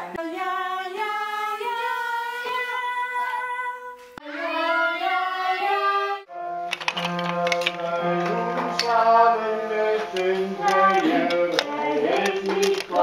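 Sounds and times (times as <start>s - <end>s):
woman singing long notes: 10.1s - 13.0s
child singing long notes: 10.6s - 12.9s.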